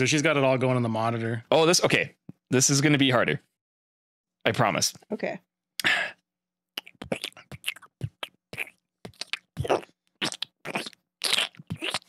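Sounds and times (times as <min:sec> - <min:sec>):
wet mouth smacking and squelching: 0:06.8 - 0:12.0.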